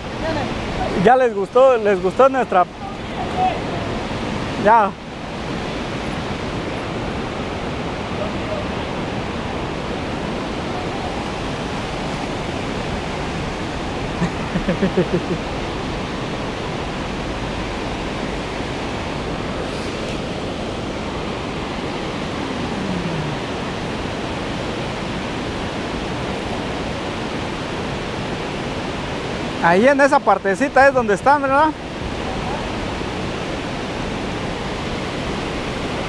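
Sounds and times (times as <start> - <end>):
flowing river water: 0.0 - 36.0.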